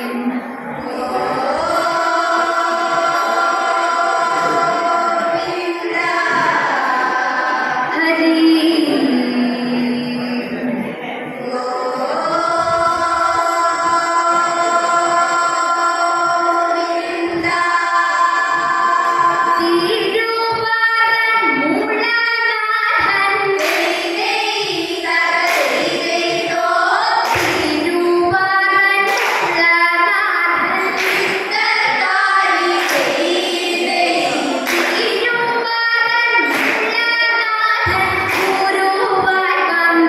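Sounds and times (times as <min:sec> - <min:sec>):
girls singing together: 0:00.0 - 0:40.0
sharp rhythmic beat: 0:22.9 - 0:40.0.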